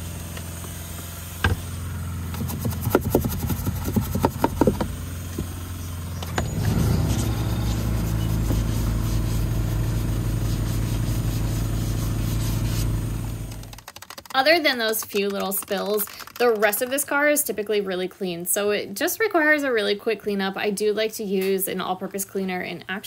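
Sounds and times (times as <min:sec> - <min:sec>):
low engine-like hum: 0:00.0 - 0:13.7.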